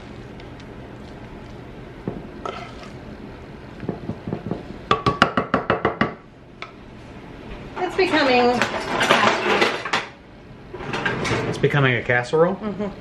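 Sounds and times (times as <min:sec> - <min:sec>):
spoon patting and scraping: 0:00.3 - 0:03.0.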